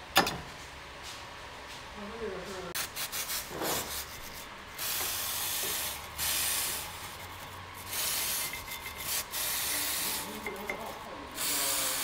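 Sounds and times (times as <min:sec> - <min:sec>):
aerosol can spraying: 0:02.8 - 0:10.4, 0:11.4 - 0:12.0
wire brush scrubbing metal: 0:02.8 - 0:12.0.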